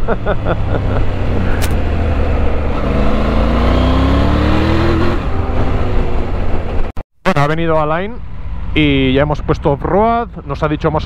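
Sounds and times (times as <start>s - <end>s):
motorcycle engine revving: 0.0s - 7.0s.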